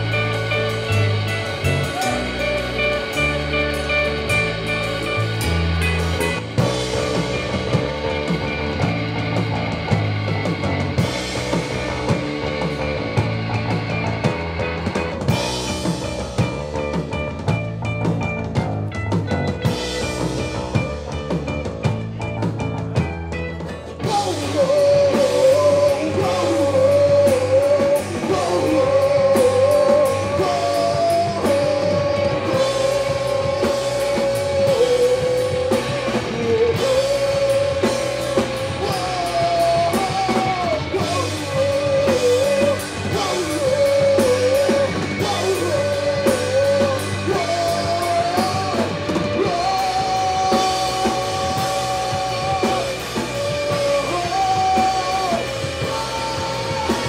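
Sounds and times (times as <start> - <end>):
bass guitar: 0.0 - 57.0
drum kit: 0.0 - 57.0
guitars: 0.0 - 57.0
person singing long notes: 24.0 - 57.0.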